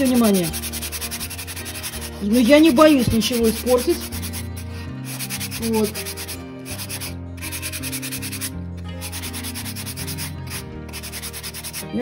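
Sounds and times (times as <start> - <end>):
sandpaper rubbing on wood: 0.0 - 12.0.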